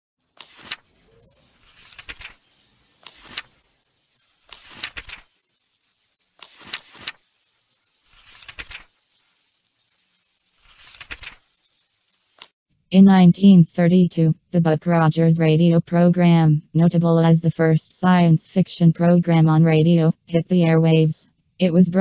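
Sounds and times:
electric crackling zaps: 0.2s - 12.6s.

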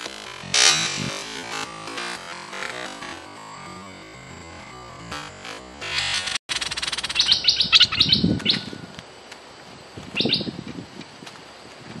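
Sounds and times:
background music: 0.0s - 6.4s
bird chirping: 6.5s - 8.9s, 10.1s - 10.6s.

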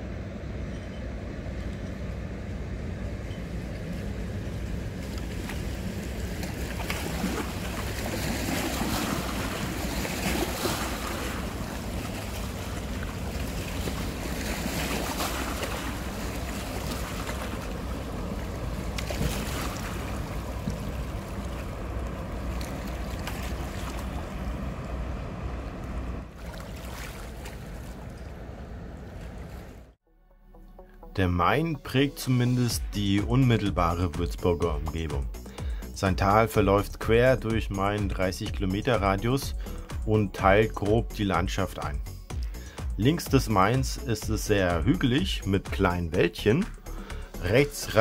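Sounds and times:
barge diesel engine drone: 0.0s - 26.4s, 27.5s - 48.0s
water washing: 3.5s - 29.9s
wake lapping against rocky bank: 3.9s - 24.8s, 26.3s - 28.4s.

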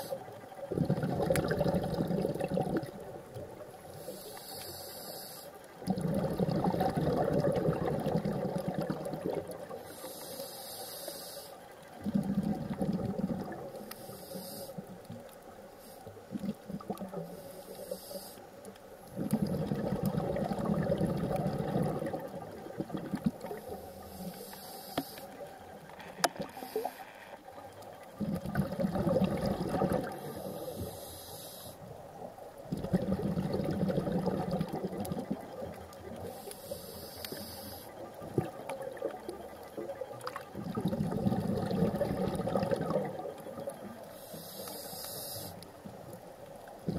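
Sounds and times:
exhale bubbling underwater: 0.0s - 3.8s, 5.8s - 10.0s, 12.0s - 13.9s, 19.1s - 24.3s, 27.6s - 30.9s, 32.2s - 44.5s, 45.8s - 46.9s.

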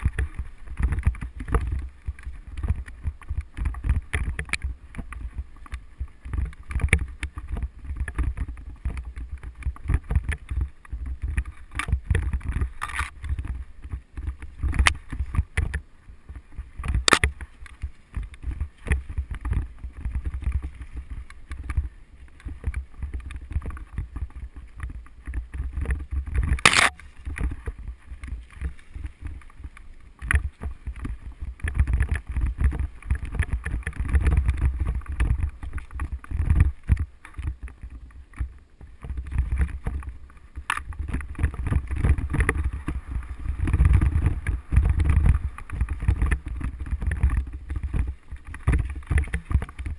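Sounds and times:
bike knocking and rattling: 0.0s - 49.9s
bike rolling low rumble: 0.0s - 49.9s
sharp clacks: 16.8s - 17.4s.

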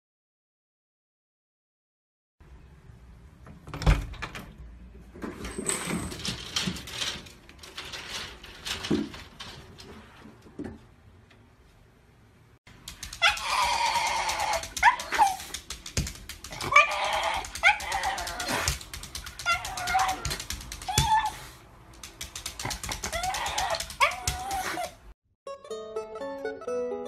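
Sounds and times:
dog whining and crying: 13.1s - 15.6s, 16.5s - 21.6s, 22.8s - 25.0s.

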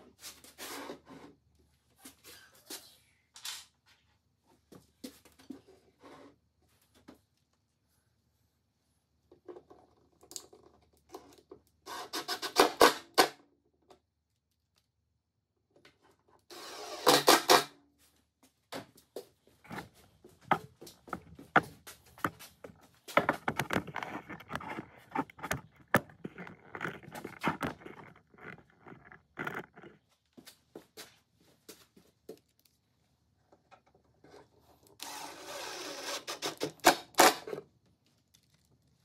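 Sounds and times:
wood knocks and scrapes: 19.6s - 30.0s
cordless driver rattling: 23.2s - 30.0s.

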